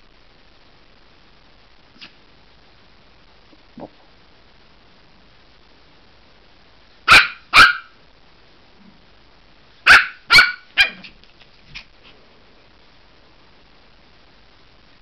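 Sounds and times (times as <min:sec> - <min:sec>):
puppy yapping: 0:07.1 - 0:07.9, 0:09.9 - 0:11.1.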